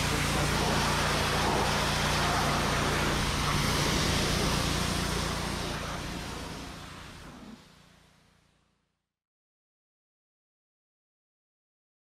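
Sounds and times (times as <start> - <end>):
high-pressure water jet hissing: 0.0 - 7.9
pressure washer engine running: 0.0 - 8.5.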